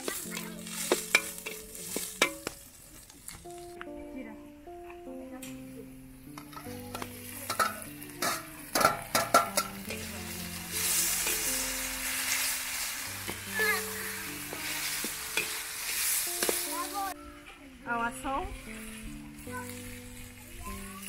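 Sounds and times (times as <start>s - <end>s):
vegetables sizzling in wok: 0.0s - 3.7s, 6.2s - 17.2s, 17.9s - 21.0s
metal spoon clinking on pan: 0.9s - 2.6s, 6.4s - 10.1s, 15.3s - 15.6s.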